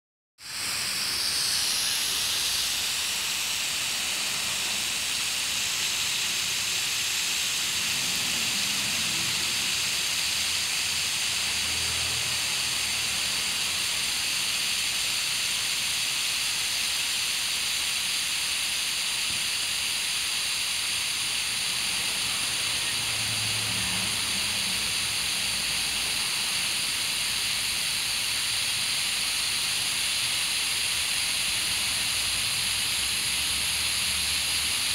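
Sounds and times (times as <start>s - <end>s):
garden hose spraying water: 0.4s - 34.9s.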